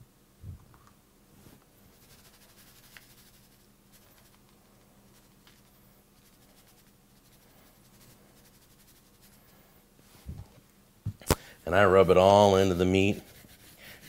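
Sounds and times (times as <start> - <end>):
low room hum: 0.0 - 14.0
dry spice rub pattering: 1.9 - 9.7, 12.4 - 14.0.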